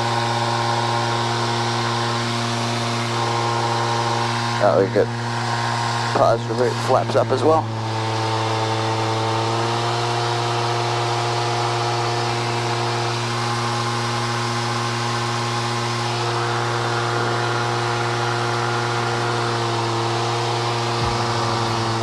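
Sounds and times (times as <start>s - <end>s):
aircraft engine droning: 0.0s - 22.0s.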